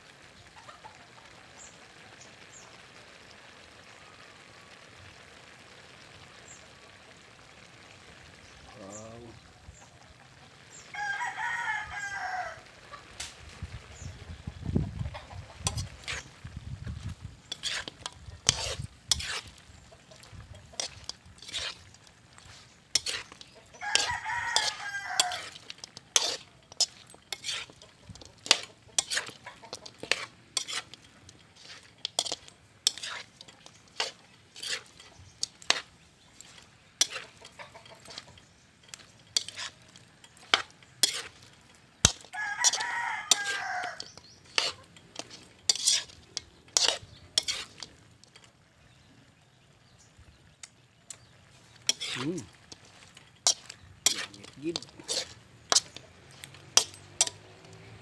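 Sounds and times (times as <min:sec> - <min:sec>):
rooster crowing: 0:10.9 - 0:13.1, 0:23.7 - 0:25.7, 0:42.2 - 0:44.2
metal ladle scraping wok: 0:15.6 - 0:48.5, 0:51.1 - 0:58.0.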